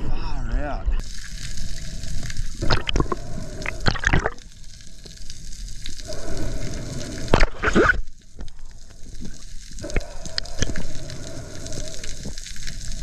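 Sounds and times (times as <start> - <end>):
water gurgling underwater: 2.4 - 4.5, 5.9 - 8.6.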